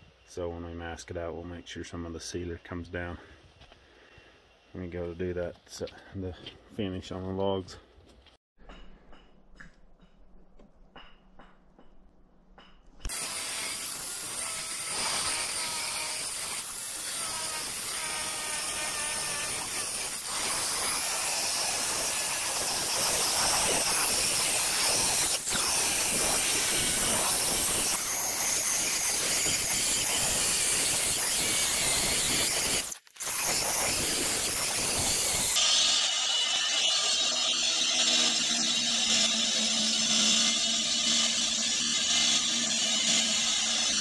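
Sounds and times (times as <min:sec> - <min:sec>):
sprayer hissing: 0:18.9 - 0:35.7.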